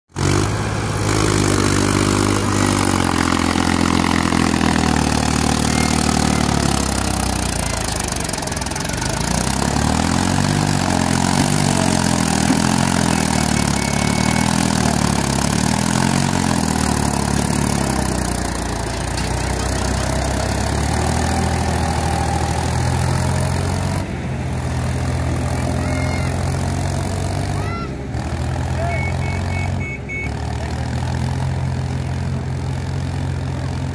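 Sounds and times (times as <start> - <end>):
tractor diesel engine under load: 0.1 - 33.9.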